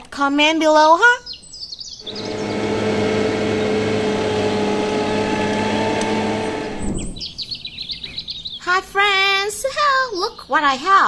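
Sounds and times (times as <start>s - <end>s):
birds chirping: 1.3s - 8.6s
tractor diesel engine running: 2.0s - 7.4s.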